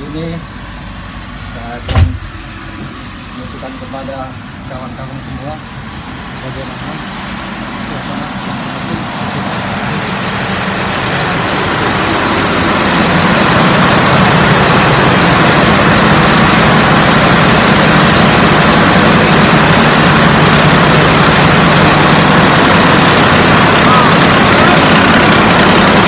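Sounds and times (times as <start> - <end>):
diesel engines droning: 0.0 - 26.0.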